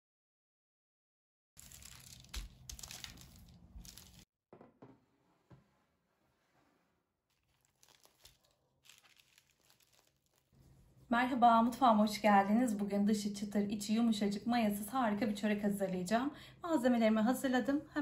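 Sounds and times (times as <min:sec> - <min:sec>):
crisp bread tearing: 0:01.6 - 0:04.3, 0:07.3 - 0:10.6.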